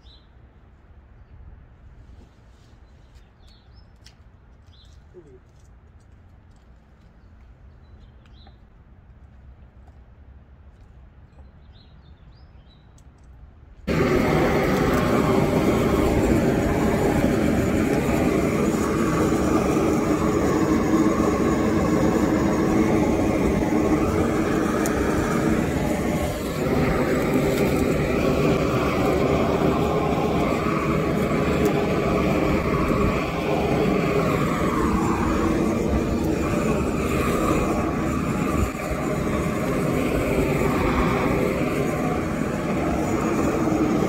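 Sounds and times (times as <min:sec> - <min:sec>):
torch flame rushing: 0:13.8 - 0:44.0.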